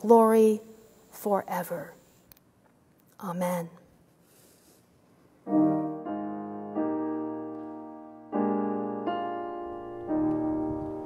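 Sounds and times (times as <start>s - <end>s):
piano playing slow chords: 5.4s - 11.0s.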